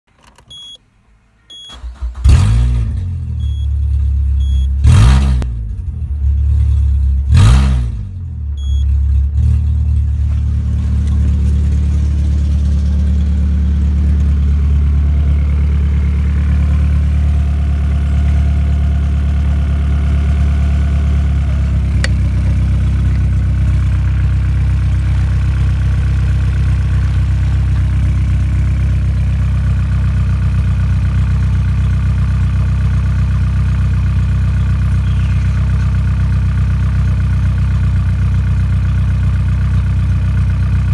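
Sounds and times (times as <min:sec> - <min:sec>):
car engine starting and revving: 0:01.7 - 0:31.4.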